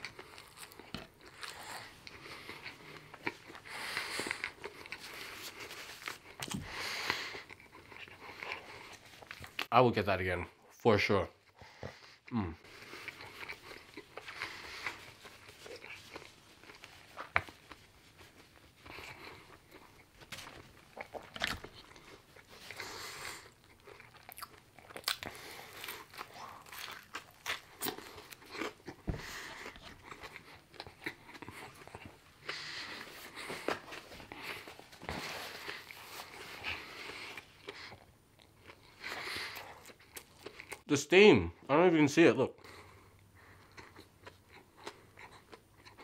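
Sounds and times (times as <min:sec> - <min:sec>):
crunchy chewing: 0:00.0 - 0:09.7, 0:12.7 - 0:40.8, 0:43.4 - 0:46.0.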